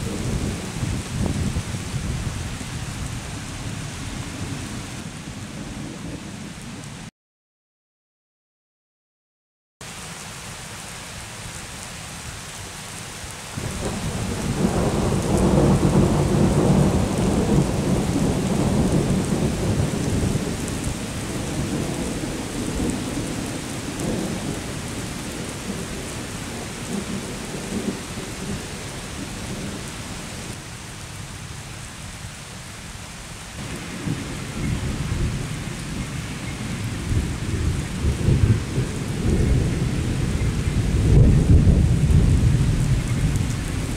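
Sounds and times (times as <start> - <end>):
steady rain: 0.0 - 7.1, 9.8 - 43.9
thunder rumbling: 13.6 - 29.8, 33.6 - 43.9.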